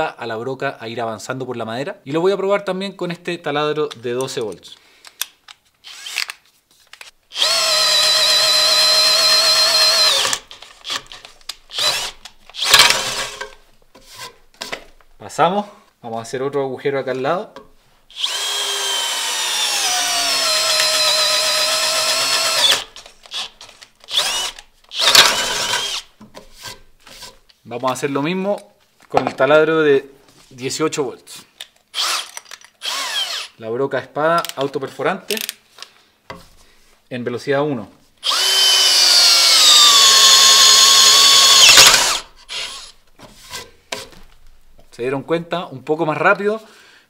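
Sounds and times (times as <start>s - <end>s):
cordless drill boring into wood: 5.8s - 6.4s, 7.3s - 13.5s, 18.1s - 26.1s, 31.9s - 33.6s, 38.2s - 43.0s.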